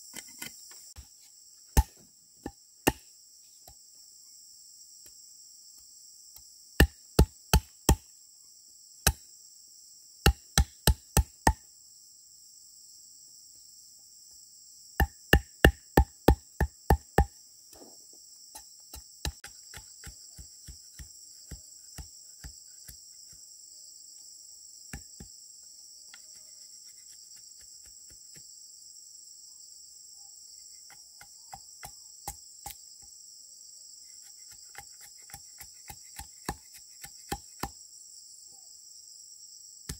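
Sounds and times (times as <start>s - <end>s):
insects chorus: 0.0s - 39.9s.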